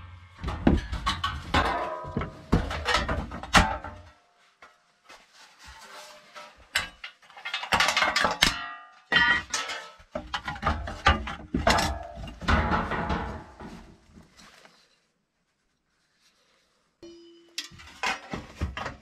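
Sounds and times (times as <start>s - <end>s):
hard objects knocking and clattering: 0.3s - 4.1s, 6.7s - 14.1s, 17.6s - 19.0s.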